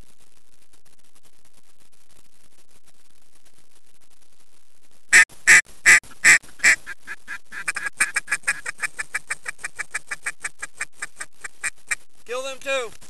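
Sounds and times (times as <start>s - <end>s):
duck quacking: 5.1s - 12.0s.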